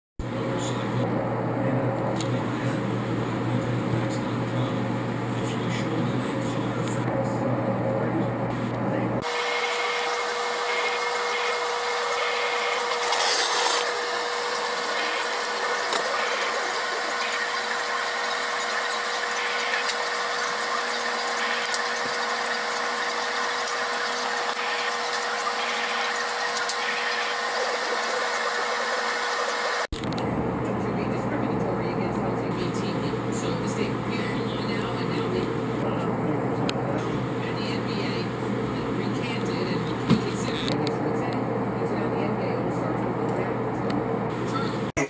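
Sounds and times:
wood scrape: 12.9 - 13.9
constant hum: 30.0 - 45.0.

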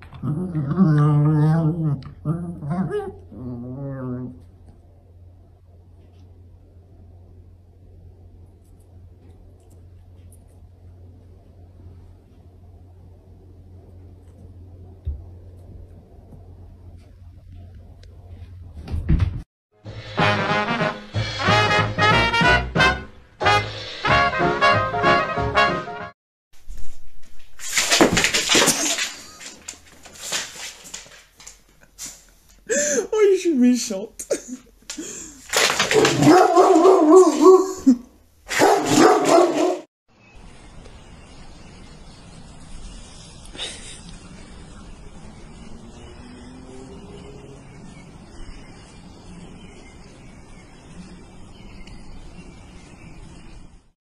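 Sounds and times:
outdoor ambience hiss: 3.2 - 18.9, 26.6 - 39.1, 40.1 - 53.9.

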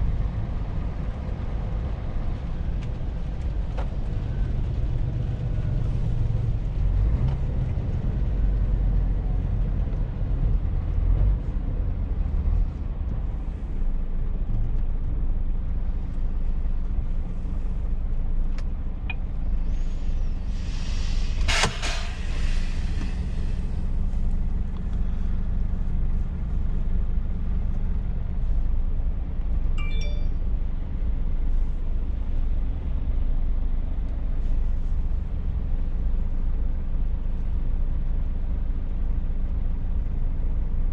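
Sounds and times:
truck diesel engine rumbling: 0.0 - 40.9
air brake hiss: 19.6 - 23.9.

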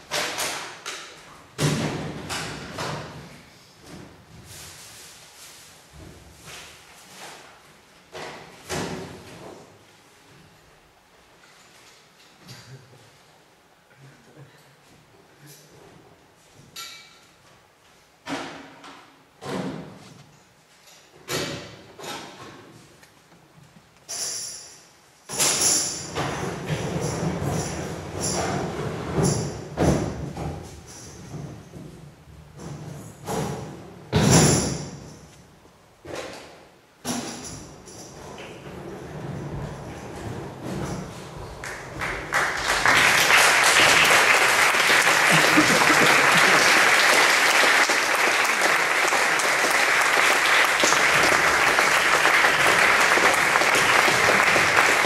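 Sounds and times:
audience applauding: 41.6 - 55.0.

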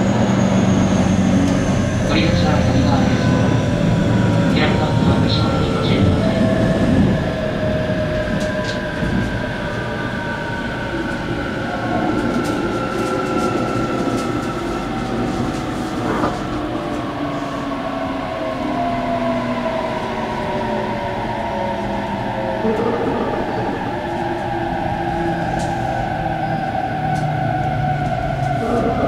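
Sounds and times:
wheels rumbling on rails: 0.0 - 29.0
rail clicks: 11.1 - 17.2, 22.7 - 29.0.

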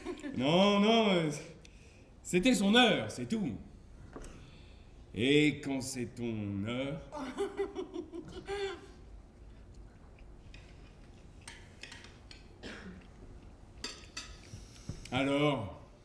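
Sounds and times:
cutlery clicking on dishes: 10.4 - 14.5.

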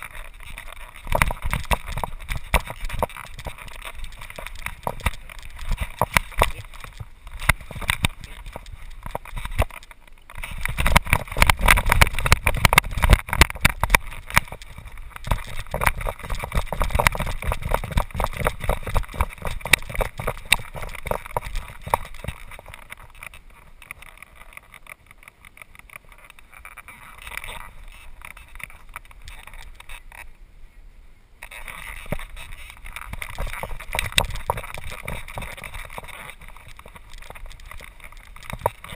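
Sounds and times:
camera mount knocks and rattles: 1.0 - 23.3.

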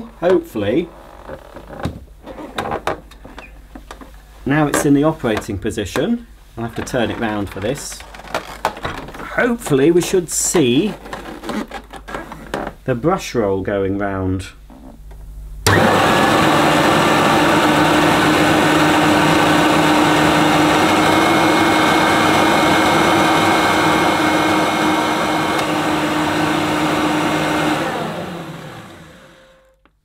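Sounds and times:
vacuum cleaner running: 15.6 - 29.8
vacuum cleaner winding down: 15.6 - 29.8.

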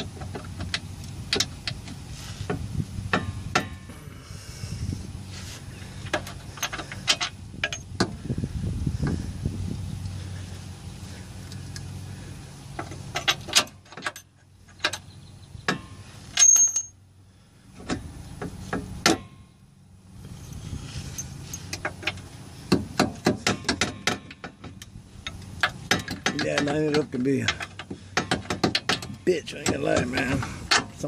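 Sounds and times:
metallic clicks and knocks: 0.0 - 3.9, 6.0 - 8.2, 12.7 - 16.9, 21.1 - 31.0
low hum: 0.0 - 22.7.

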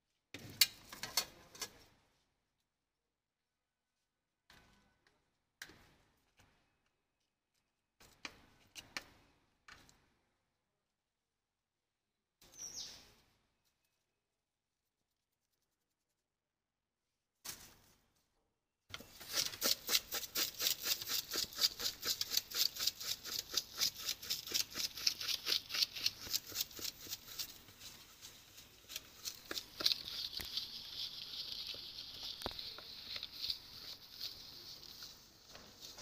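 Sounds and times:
spoon stirring in plastic bowl: 19.0 - 36.0.

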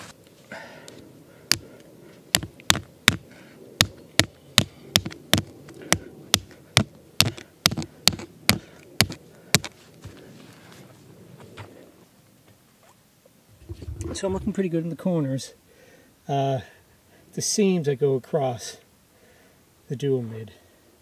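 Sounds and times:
rock pounding a tent peg: 1.5 - 1.7, 2.3 - 3.2, 3.8 - 9.7.

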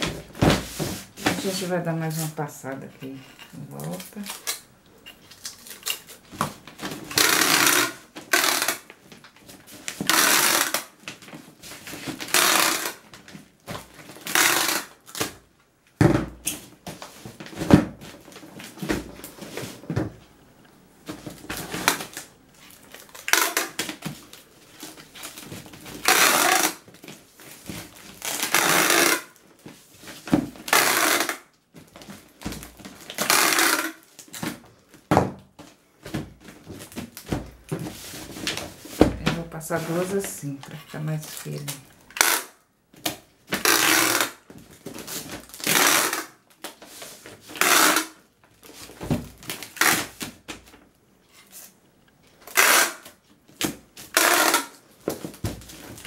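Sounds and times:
packing tape pulled from dispenser: 7.0 - 9.0, 10.0 - 13.2, 14.0 - 15.4, 23.0 - 24.0, 26.0 - 26.9, 28.0 - 29.4, 30.6 - 31.5, 33.0 - 34.5, 41.6 - 42.6, 43.5 - 44.4, 45.0 - 48.2, 49.5 - 50.3, 52.4 - 53.2, 54.0 - 54.8.

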